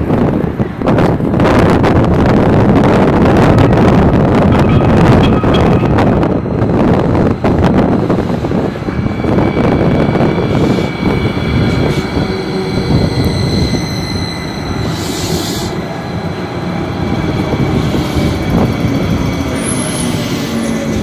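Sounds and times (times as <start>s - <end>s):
rumble of train wheels: 0.0s - 21.0s
high whine: 2.6s - 15.2s.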